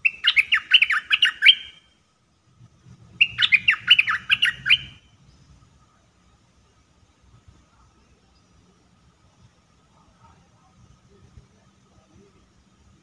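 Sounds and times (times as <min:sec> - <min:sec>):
bulbul singing: 0:00.0 - 0:02.5, 0:03.1 - 0:06.5.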